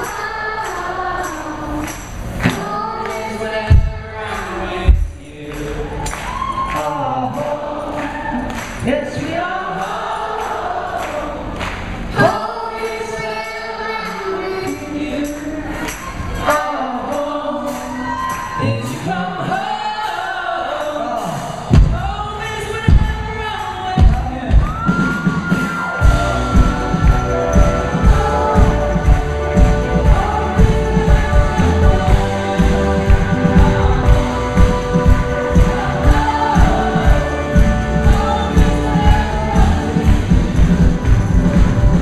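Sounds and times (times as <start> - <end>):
voices singing: 6.8 - 15.8, 25.5 - 41.8
steady drum beat: 21.6 - 42.0
keyboards: 21.9 - 42.0.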